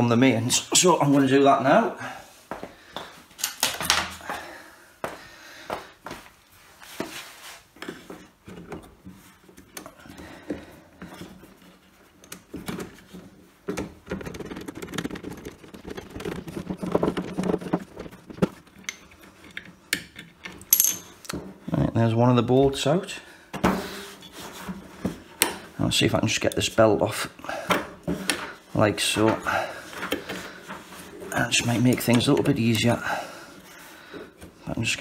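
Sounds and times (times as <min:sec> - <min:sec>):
metal rubbing and scraping: 0:14.0 - 0:20.4
socket tool clinking on bolt: 0:19.6 - 0:21.1.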